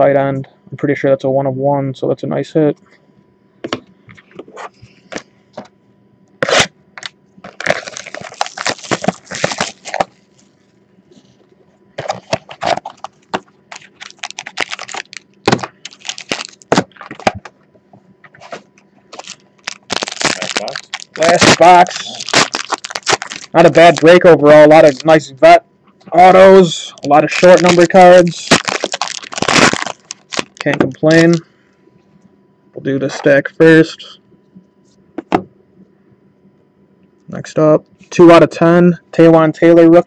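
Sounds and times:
foil wrappers crinkling: 6.4s - 10.6s, 12.0s - 17.3s, 18.4s - 25.3s, 26.6s - 31.4s.

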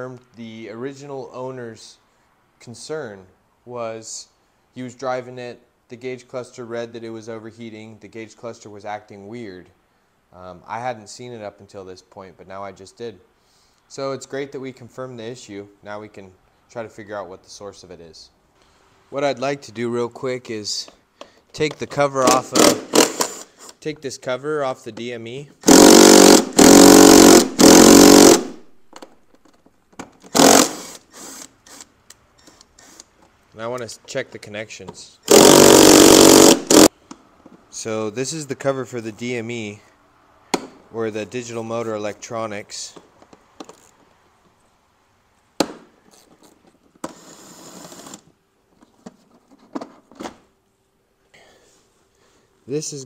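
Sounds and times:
power driver motor bursts: 22.3s - 23.6s, 25.6s - 28.6s, 30.3s - 31.9s, 35.3s - 36.9s.

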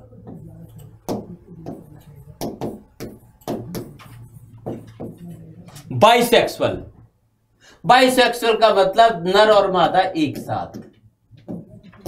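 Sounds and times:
marker writing on whiteboard: 0.2s - 5.3s, 9.8s - 12.0s.

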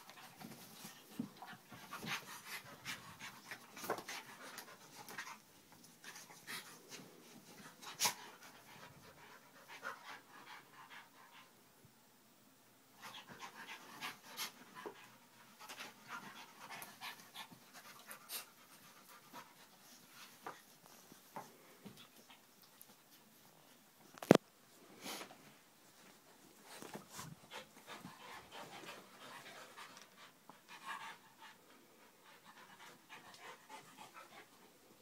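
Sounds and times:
dogs panting heavily: 13.1s - 20.5s, 27.0s - 34.7s.

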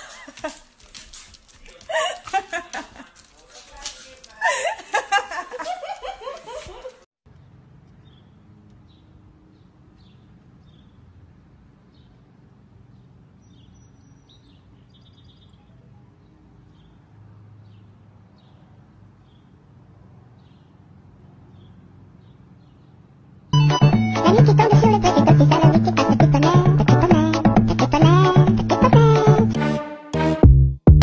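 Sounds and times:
small birds chirping: 7.3s - 23.3s.

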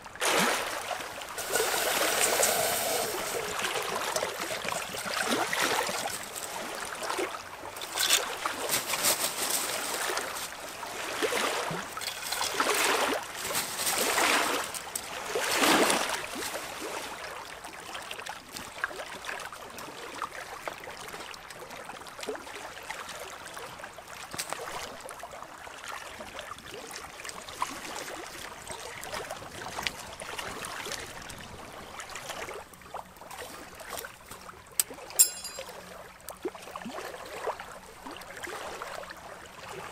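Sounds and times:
water washing against rocky shore: 0.2s - 16.6s.

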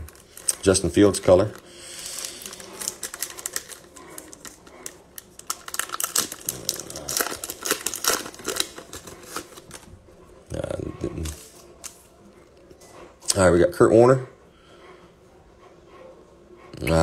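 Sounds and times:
foil wrapper tearing and crinkling: 0.0s - 9.9s.

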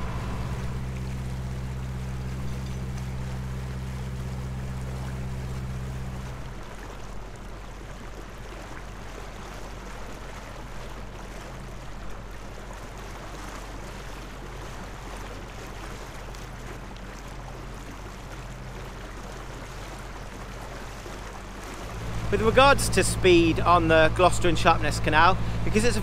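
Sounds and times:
faint boat engine hum: 0.0s - 26.0s
water hissing past boat: 21.7s - 26.0s.

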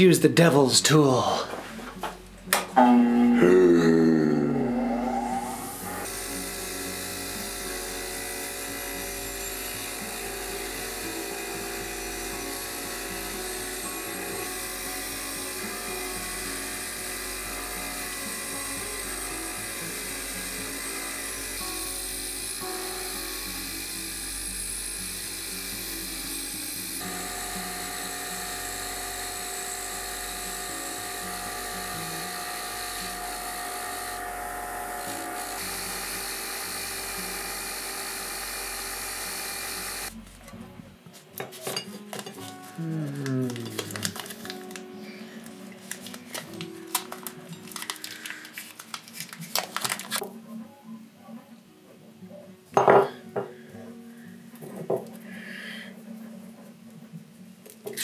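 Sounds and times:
bench grinder motor whine: 4.3s - 40.2s.

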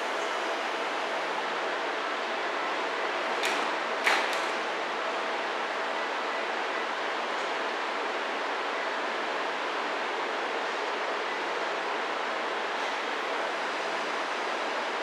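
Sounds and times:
train doors closing with hiss: 2.9s - 4.8s.

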